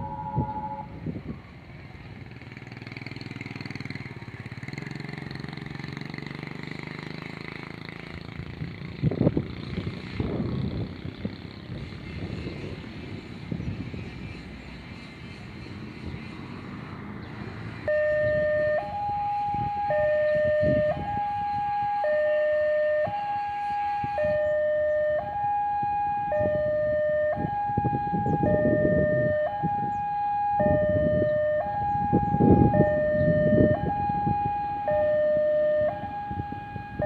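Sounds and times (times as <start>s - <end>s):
level crossing two-tone alarm: 0.0s - 1.0s, 17.9s - 37.0s
passing road vehicle engines: 0.0s - 37.0s.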